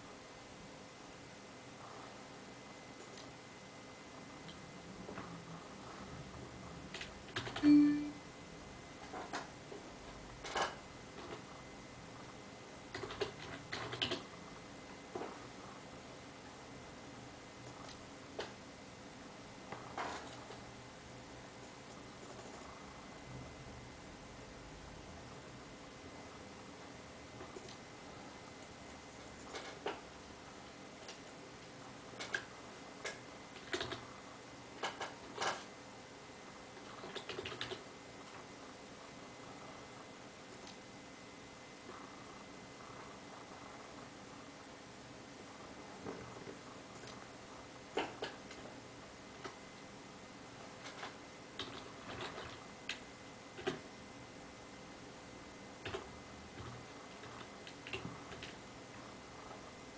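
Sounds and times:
computer keyboard key clicks: 0:12.9 - 0:14.2, 0:37.1 - 0:37.8.

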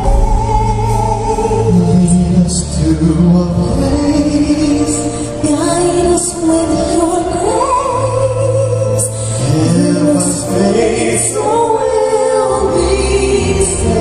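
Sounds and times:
woman and man singing a ballad duet: 0:00.0 - 0:14.0.

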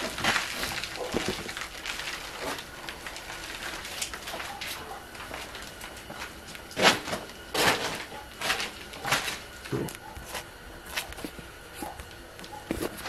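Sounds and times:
knife scraping hide: 0:08.5 - 0:13.0.

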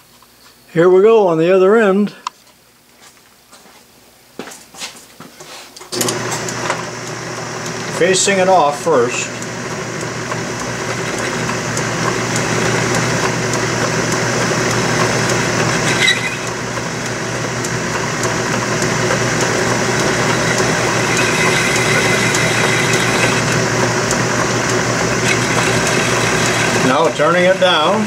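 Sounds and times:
metal lathe cutting: 0:06.0 - 0:28.0.

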